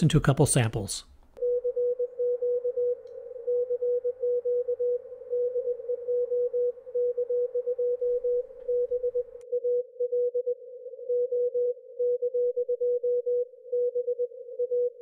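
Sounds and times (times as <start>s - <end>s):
morse code beeps: 1.4s - 9.4s.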